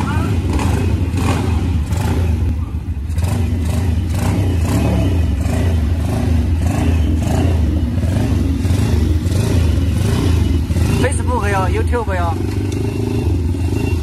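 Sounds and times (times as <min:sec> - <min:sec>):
motorbike engine running: 0:00.0 - 0:14.0.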